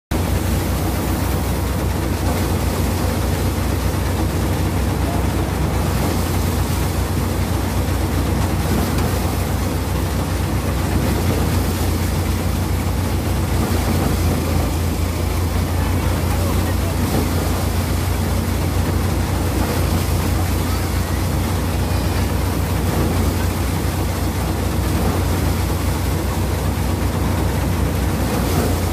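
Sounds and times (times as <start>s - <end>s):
thresher droning with rushing noise: 0.1s - 28.9s.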